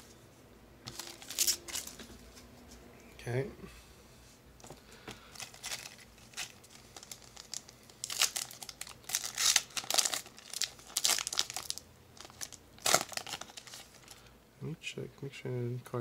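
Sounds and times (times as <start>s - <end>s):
foil wrapper crinkling: 0.9s - 2.0s, 5.3s - 14.3s
foil wrapper tearing open: 0.9s - 2.0s, 5.4s - 14.2s.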